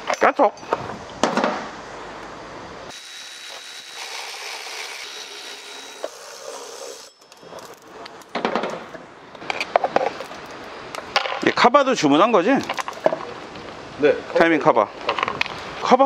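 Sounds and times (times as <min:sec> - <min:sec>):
metal tools clicking and scraping: 0:06.0 - 0:11.5.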